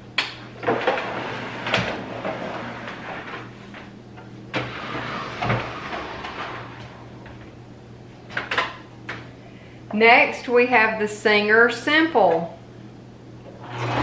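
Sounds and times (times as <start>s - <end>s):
faint steady hum: 0.0s - 14.0s
machine scraping on wooden table: 13.6s - 14.0s.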